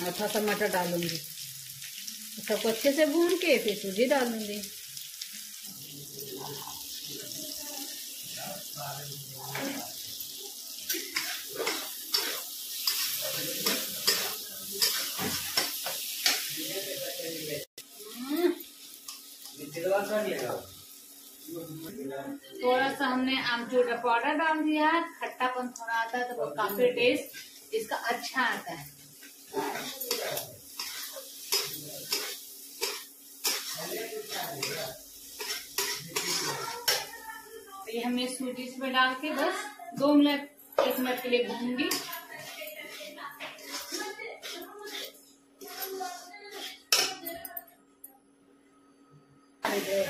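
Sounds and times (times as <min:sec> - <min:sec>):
vegetables sizzling in a pan: 0:00.0 - 0:47.6, 0:49.6 - 0:50.0
spatula scraping a pan: 0:10.9 - 0:16.5, 0:29.2 - 0:37.1, 0:41.5 - 0:47.3.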